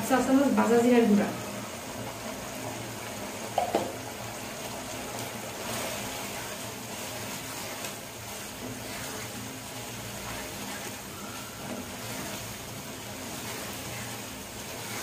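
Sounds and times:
minced meat simmering: 0.1 - 15.0
wooden spatula scraping pan: 5.6 - 15.0.

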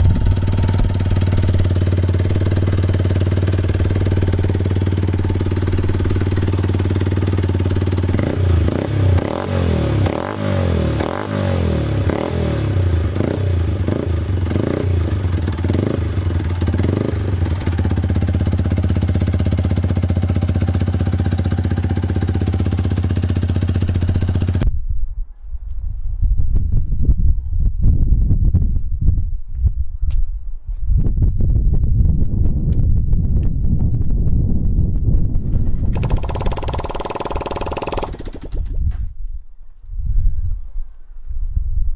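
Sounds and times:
motorcycle engine idling and revving: 0.0 - 24.7, 33.0 - 38.9.

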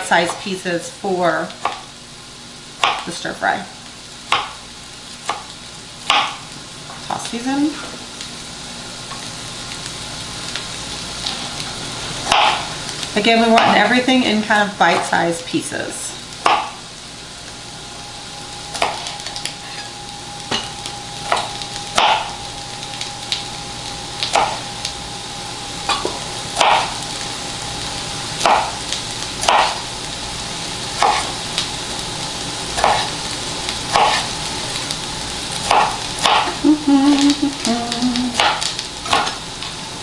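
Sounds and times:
vegetables sizzling in oil: 0.0 - 40.0
knife chopping on cutting board: 2.8 - 3.0, 4.3 - 4.6, 6.1 - 6.4, 12.3 - 12.7, 16.4 - 16.8, 18.8 - 19.1, 22.0 - 22.3, 24.3 - 24.6, 26.6 - 26.9, 28.4 - 28.8, 29.4 - 29.8, 31.0 - 31.3, 32.8 - 33.1, 33.9 - 34.3, 35.6 - 36.6, 38.4 - 39.4.

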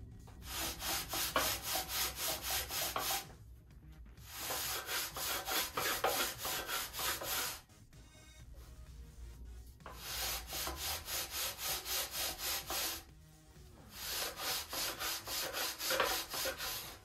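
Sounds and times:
sanding bar rubbing on wood: 0.4 - 3.3, 4.2 - 7.6, 9.9 - 13.1, 13.9 - 17.0.

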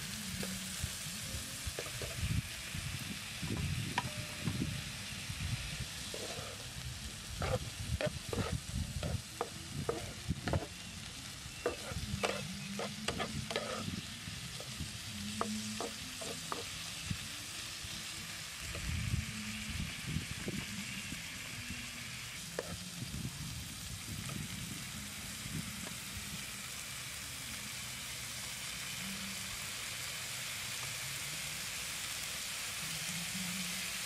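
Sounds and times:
food sizzling in a frying pan: 0.0 - 34.0
wooden spatula scraping a pan: 6.0 - 6.7, 7.4 - 10.7, 11.6 - 14.8, 15.4 - 16.8.

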